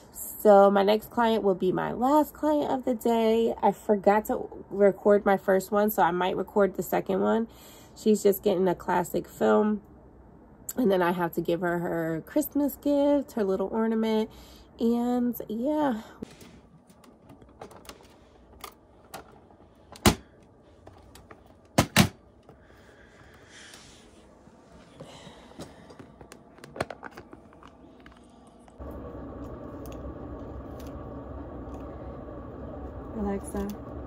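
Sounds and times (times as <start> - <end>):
low room hum: 0.0 - 34.0
plastic cases clicking: 25.9 - 28.2.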